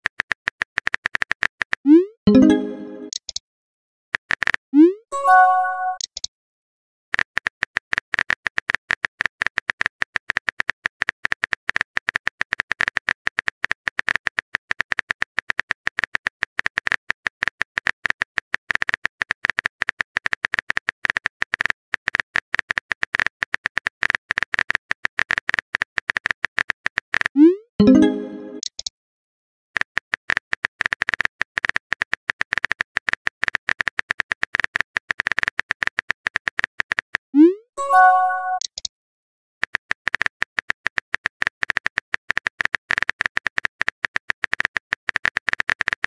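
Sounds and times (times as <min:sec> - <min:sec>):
chime message tone: 0:02.3 - 0:03.1, 0:05.1 - 0:06.0, 0:27.8 - 0:28.6, 0:37.8 - 0:38.7.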